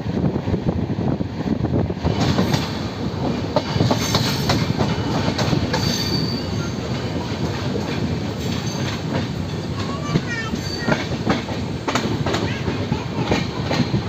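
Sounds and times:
train wheels rumbling on rails: 0.0s - 14.0s
wheels clicking over rail joints: 2.0s - 14.0s
wheel squeal: 5.8s - 6.8s.

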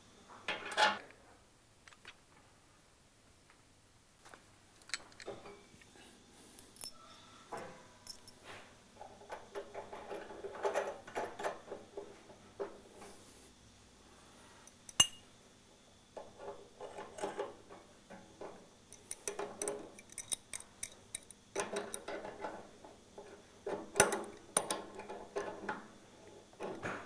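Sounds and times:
metal tools clinking and scraping: 6.5s - 7.3s, 8.0s - 8.5s, 14.7s - 15.2s, 19.0s - 22.5s.

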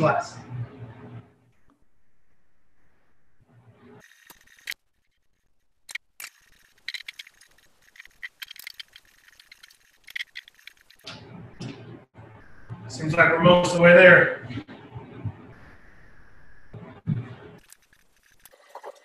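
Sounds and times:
metal stands clicking and rattling: 5.9s - 11.2s.

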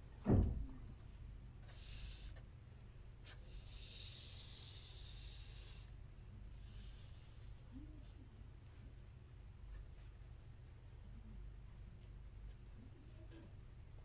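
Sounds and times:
dull thump: 0.2s - 0.8s
pencil scratching on paper: 1.6s - 2.4s, 3.2s - 5.9s, 6.6s - 7.7s, 9.3s - 12.6s.

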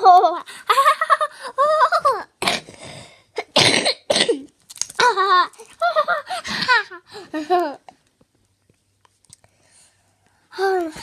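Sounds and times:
girl coughing: 3.4s - 4.5s.

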